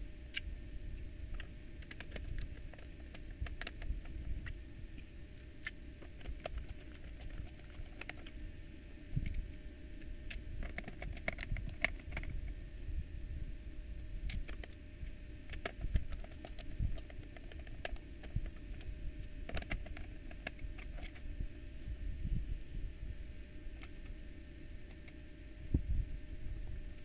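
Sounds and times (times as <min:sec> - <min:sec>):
low rumbling of case handled: 0:10.4 - 0:12.6, 0:14.2 - 0:21.4.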